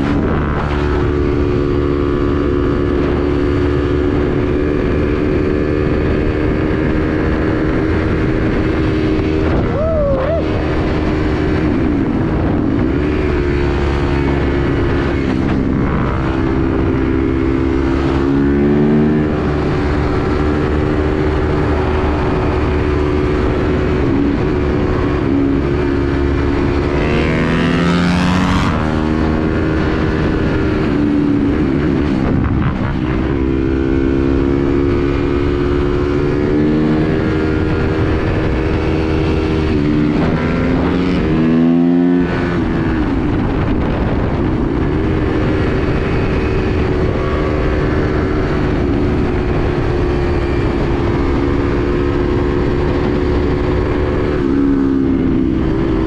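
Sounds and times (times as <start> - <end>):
dirt bike engine revving: 0.0 - 42.8
wind rush: 0.0 - 56.0.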